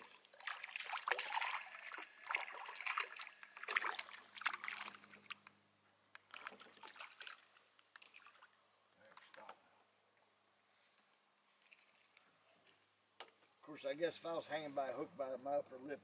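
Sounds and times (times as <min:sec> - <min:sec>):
fish splashing in water: 0:00.0 - 0:05.4, 0:06.3 - 0:08.6.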